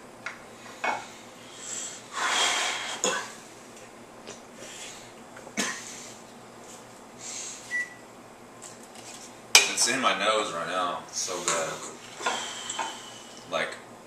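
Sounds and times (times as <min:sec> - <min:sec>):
man coughing: 0:05.6 - 0:06.0.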